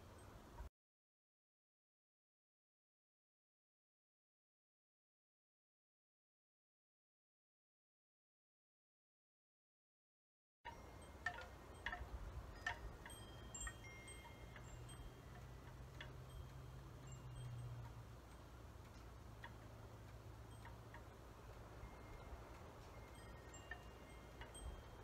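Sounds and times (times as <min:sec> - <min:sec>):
faint metallic chimes: 0:10.7 - 0:25.0.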